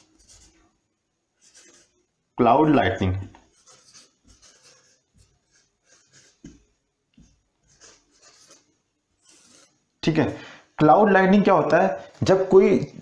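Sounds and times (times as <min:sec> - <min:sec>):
marker writing on whiteboard: 0:00.0 - 0:00.7, 0:01.4 - 0:02.1, 0:03.4 - 0:09.9.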